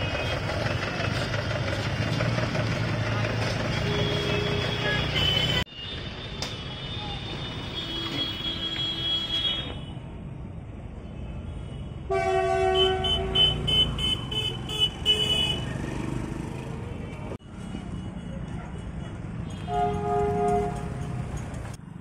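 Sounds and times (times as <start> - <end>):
road traffic rumbling: 0.0 - 22.0
vehicle horn toots: 3.8 - 5.6, 12.1 - 15.7, 19.5 - 21.0
motorcycles passing: 13.0 - 17.4.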